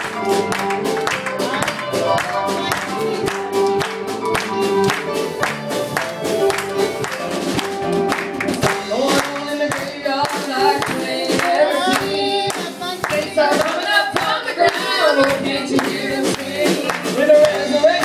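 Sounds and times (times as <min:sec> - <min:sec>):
hands clapping in a beat: 0:00.0 - 0:18.0
gospel singing: 0:08.4 - 0:18.0.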